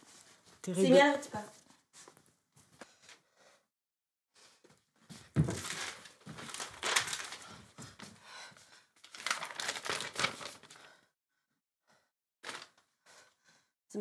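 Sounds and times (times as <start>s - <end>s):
paper rustling and crinkling: 5.3s - 8.1s, 9.0s - 11.0s, 12.4s - 12.8s.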